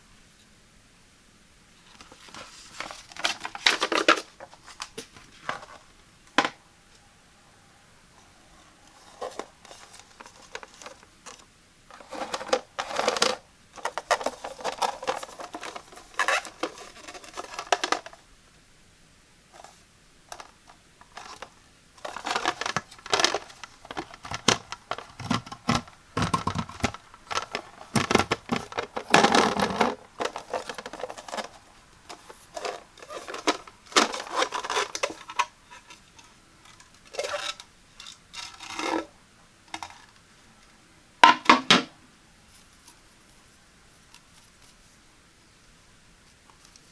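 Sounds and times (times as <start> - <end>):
plastic tray handled: 2.0 - 6.6, 9.0 - 18.2, 19.5 - 36.1.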